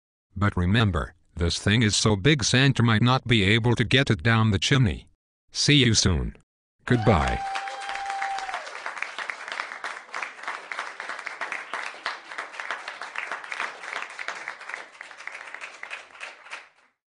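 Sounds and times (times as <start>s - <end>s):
audience applause: 6.9s - 16.9s.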